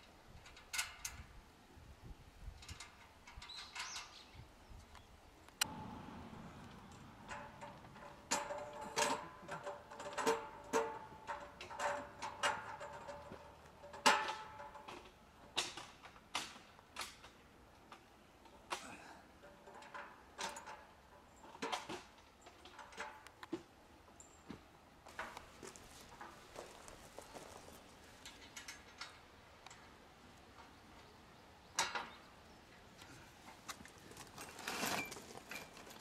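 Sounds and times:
steel parts clinking and knocking: 6.6s - 17.4s.

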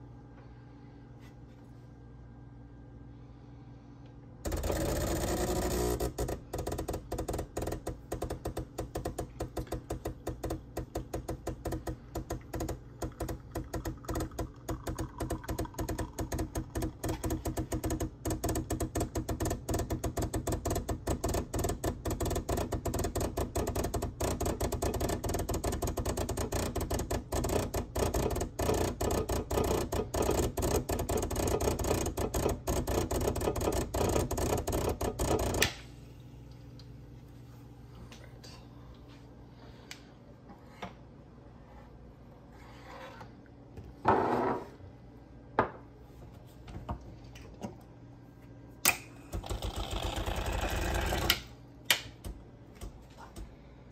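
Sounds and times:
pump low hum: 4.4s - 37.1s
espresso machine pump clicking: 4.5s - 35.8s, 48.8s - 51.5s.

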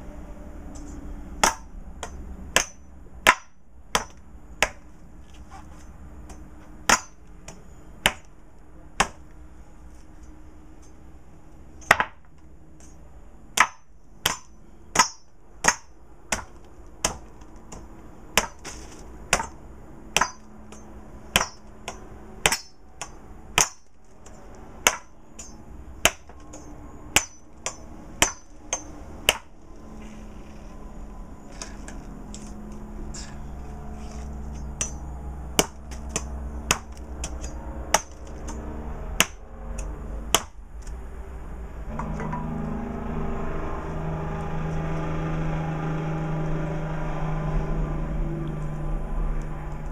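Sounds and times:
machete chopping coconut husk: 1.4s - 4.9s, 6.2s - 8.4s, 9.0s - 9.3s, 11.8s - 29.5s, 34.0s - 41.0s.

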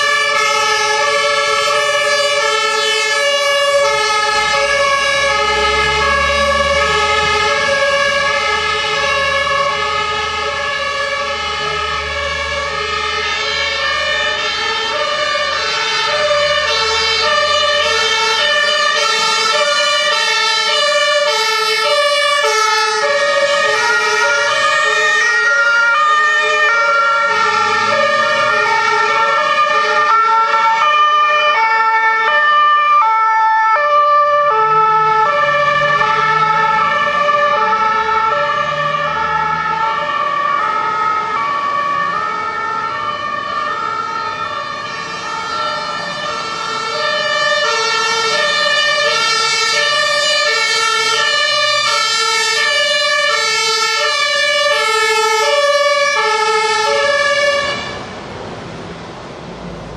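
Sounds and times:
diesel engine noise: 0.0s - 31.8s, 33.7s - 59.9s
two-tone emergency sirens: 0.0s - 59.9s.

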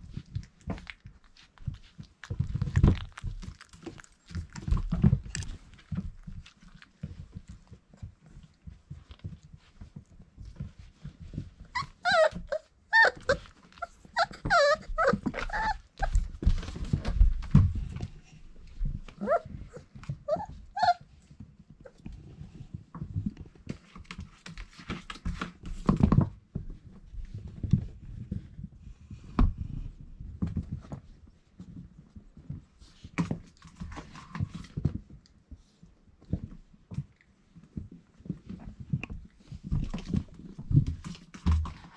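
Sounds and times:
puppies yipping and squealing: 11.8s - 16.2s, 19.2s - 21.0s.

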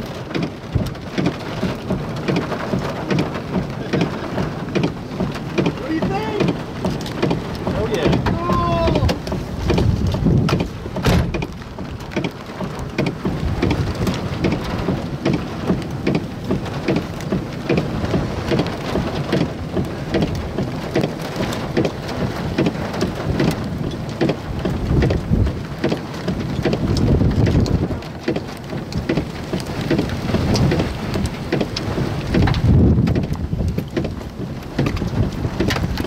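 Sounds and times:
deep rumble: 0.0s - 22.2s
raindrops tapping: 0.0s - 36.0s.

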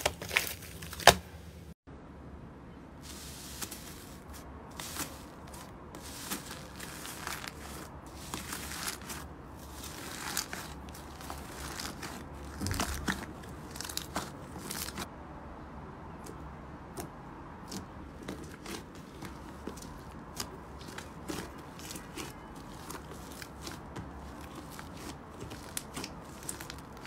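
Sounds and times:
slime crackling and popping: 6.0s - 15.1s, 18.3s - 27.0s.

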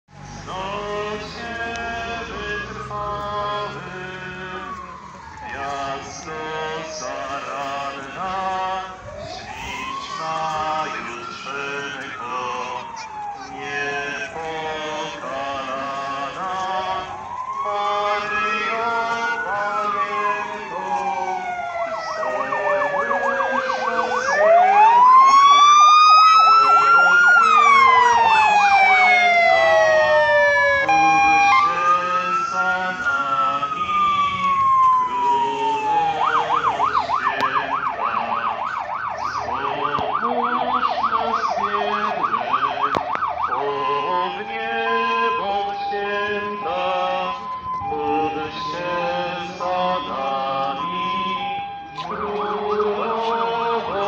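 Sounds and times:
police siren wailing: 0.2s - 54.0s
person singing: 0.4s - 25.5s, 30.8s - 54.0s
siren rapid yelp: 4.5s - 54.0s.

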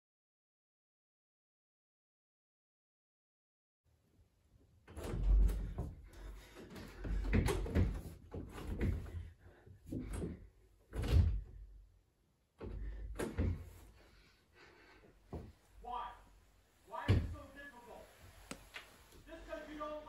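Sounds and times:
door opening and shutting: 4.8s - 9.1s, 10.0s - 11.6s, 12.6s - 13.8s
bumps and thuds against door: 4.9s - 11.7s, 12.6s - 13.9s.

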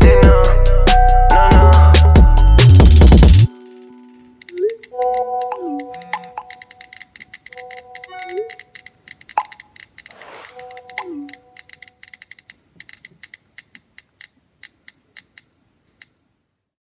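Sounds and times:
held synth notes: 3.5s - 6.8s, 7.5s - 8.8s
light clock-like ticks: 4.4s - 16.2s.

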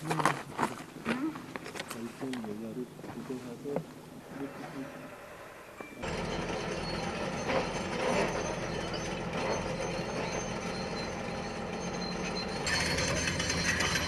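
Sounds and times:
excavator engine and hydraulics: 4.3s - 14.0s
hydraulic rock breaker clatter: 6.0s - 14.0s.

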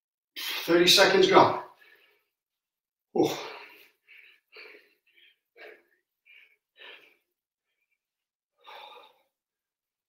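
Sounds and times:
man breathing hard: 1.7s - 2.4s, 3.2s - 9.6s.

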